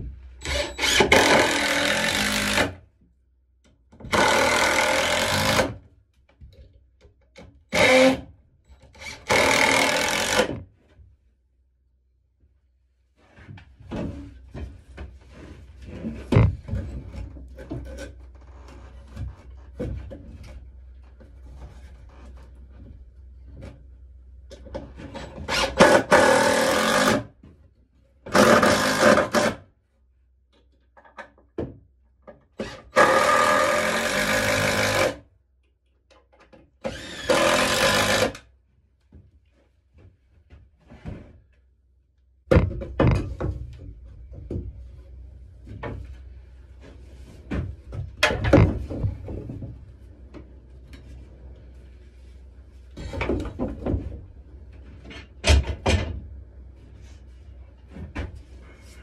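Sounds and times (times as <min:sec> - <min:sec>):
cordless drill driving screws: 0:00.4 - 0:02.7, 0:04.1 - 0:05.7, 0:32.9 - 0:35.2, 0:36.8 - 0:38.4
tool handles knocking and clattering: 0:42.5 - 0:44.8.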